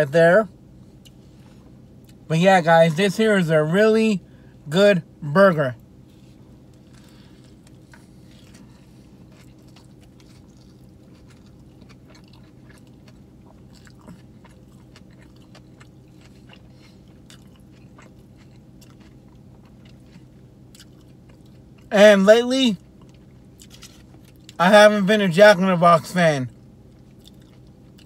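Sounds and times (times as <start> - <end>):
steady low hum: 0.0 - 28.0
man chewing food: 0.8 - 2.2, 6.0 - 21.9, 22.8 - 24.6, 26.5 - 28.0.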